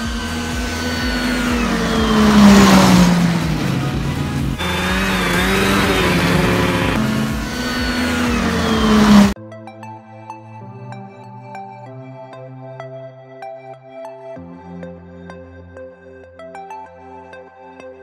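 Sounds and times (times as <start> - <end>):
snowmobile engine passing by: 0.0 - 9.4.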